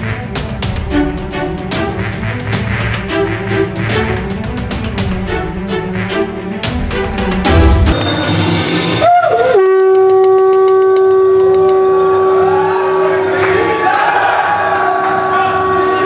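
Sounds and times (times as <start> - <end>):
conch shell blown: 9.0 - 13.8, 14.8 - 16.0.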